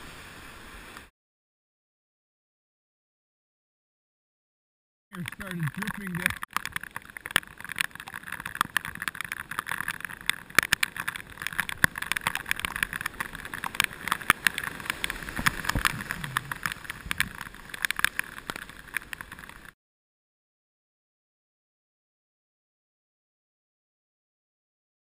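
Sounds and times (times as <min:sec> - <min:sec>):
rain pattering on camera housing: 0:05.2 - 0:19.8.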